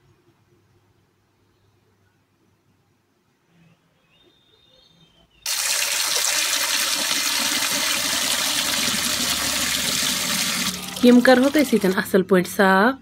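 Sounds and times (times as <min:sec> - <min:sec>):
water pouring into a bowl: 0:05.5 - 0:12.0.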